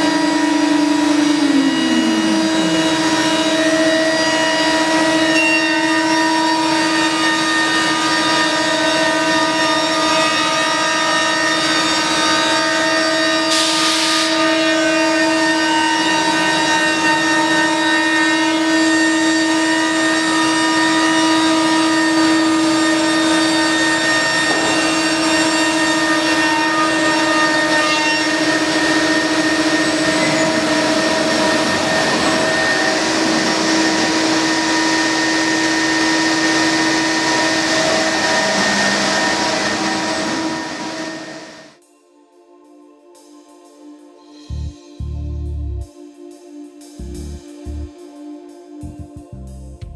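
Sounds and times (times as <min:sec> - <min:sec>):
router spindle whine: 0:00.0 - 0:41.8
loud rushing hiss: 0:06.5 - 0:41.8.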